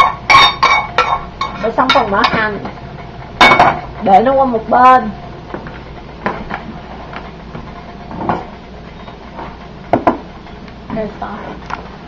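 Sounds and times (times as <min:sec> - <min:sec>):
glass bowl and spoon clinking: 0:00.0 - 0:02.1
low background hum: 0:00.0 - 0:12.0
bowl knocking on wooden counter: 0:09.9 - 0:10.2.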